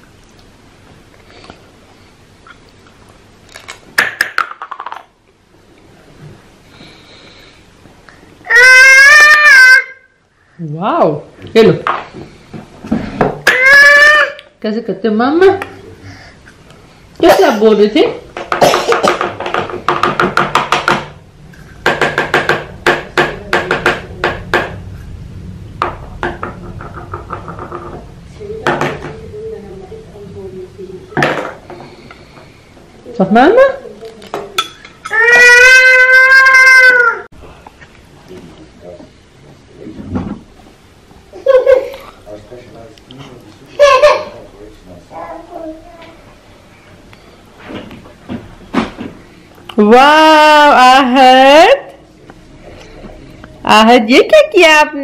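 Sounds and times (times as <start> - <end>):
baby squealing: 8.4 - 10.0, 13.4 - 14.5, 35.0 - 37.3
object clattering on a tabletop: 25.8 - 29.2.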